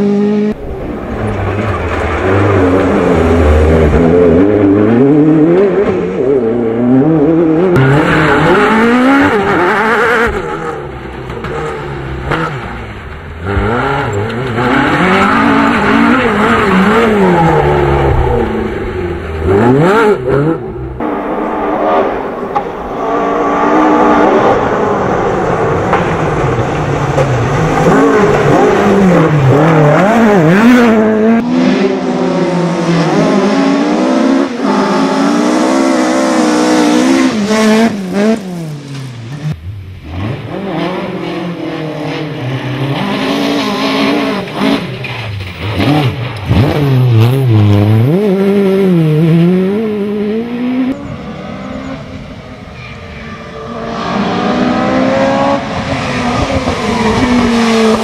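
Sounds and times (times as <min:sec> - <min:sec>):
rally engine revving and shifting: 0:00.0 - 0:58.0.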